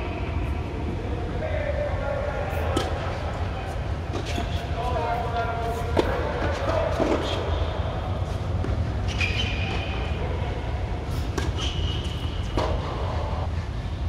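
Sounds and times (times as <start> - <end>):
court shoes squeaking: 3.7 - 13.5
tennis balls struck by rackets: 11.3 - 13.3.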